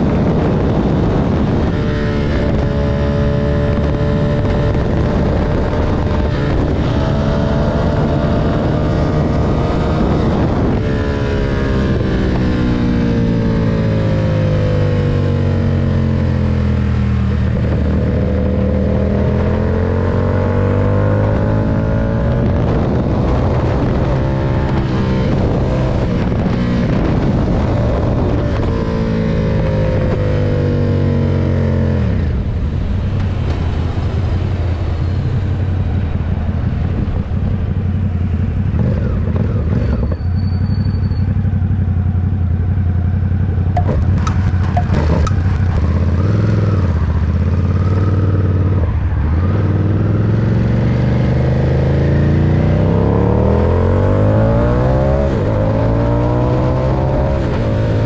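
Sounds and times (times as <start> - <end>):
motorcycle engine accelerating: 0.0 - 58.0
sharp clicks: 43.8 - 45.9.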